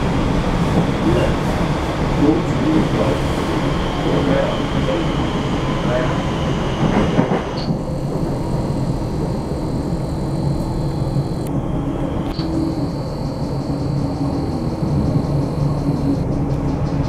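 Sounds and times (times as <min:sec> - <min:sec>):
train wheels rumbling on track: 0:00.0 - 0:17.0
thin high whine: 0:02.2 - 0:16.3.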